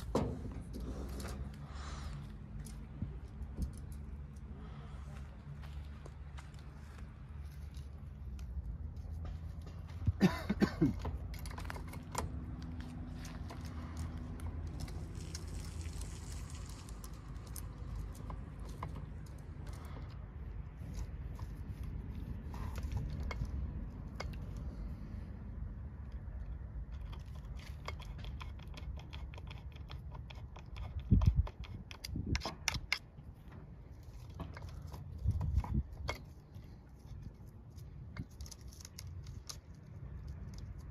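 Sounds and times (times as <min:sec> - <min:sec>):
metallic clicks and rattles: 0:10.9 - 0:20.2.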